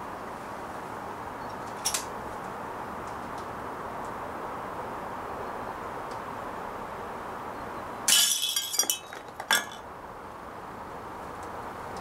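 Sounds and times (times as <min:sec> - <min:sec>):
tin can clattering: 0:08.1 - 0:09.8.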